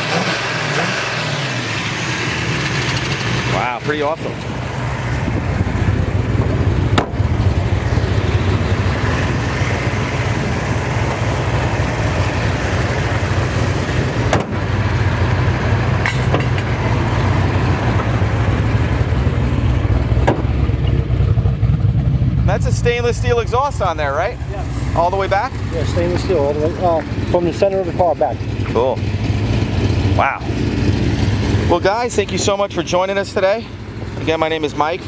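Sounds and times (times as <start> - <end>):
engine idling lumpily: 1.5 - 35.0.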